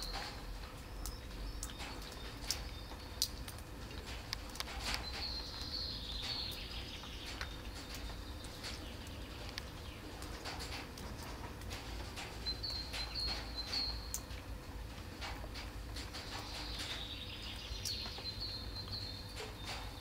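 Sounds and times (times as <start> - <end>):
cats chewing and lapping: 0.0 - 20.0
small bird chirping trill: 5.0 - 10.1, 12.4 - 14.3, 16.2 - 20.0.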